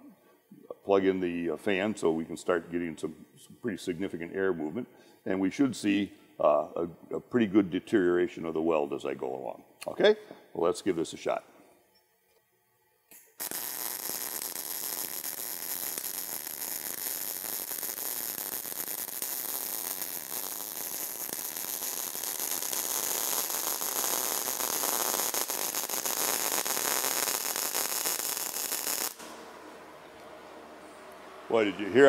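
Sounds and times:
welding arc crackling: 13.1 - 30.3
fan whirring: 29.1 - 32.0.

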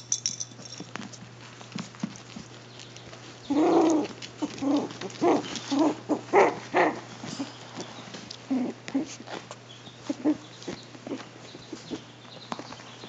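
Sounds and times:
puppies yapping: 2.4 - 12.7.

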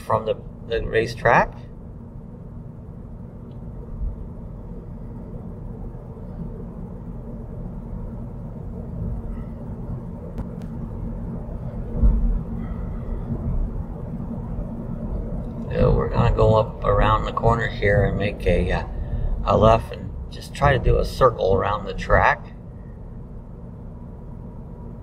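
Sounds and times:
car road and engine rumble: 0.0 - 25.0
low thump: 11.9 - 12.6.

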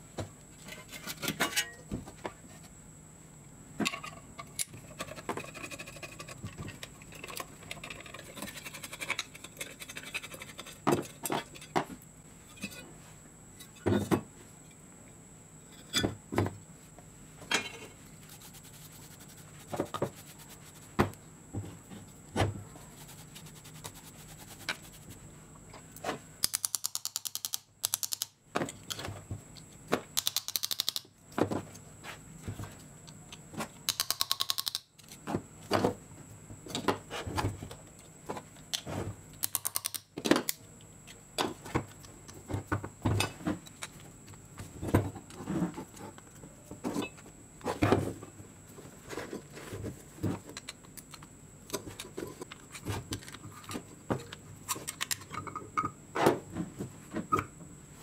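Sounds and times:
metal parts knocking and clinking: 30.2 - 31.0.

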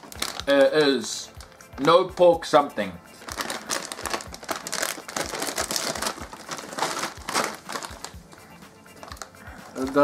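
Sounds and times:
foil snack bag crinkling: 0.0 - 2.2, 3.2 - 8.4.

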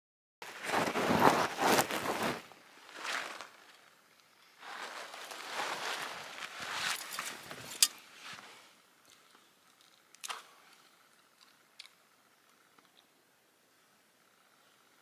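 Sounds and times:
rustling and handling noise: 0.4 - 11.9.

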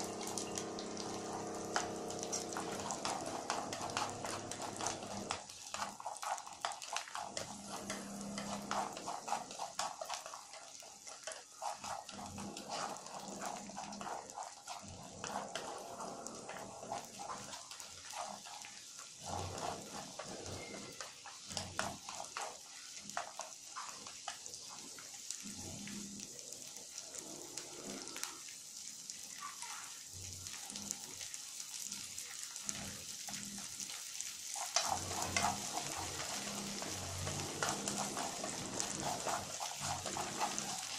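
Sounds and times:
corn sizzling in a frying pan: 0.0 - 40.9
chopsticks scraping a pan: 1.8 - 24.8, 34.5 - 40.9.

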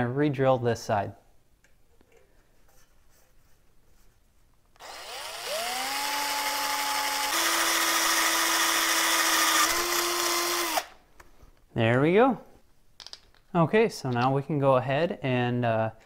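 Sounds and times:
cordless drill motor whining: 4.8 - 11.0.

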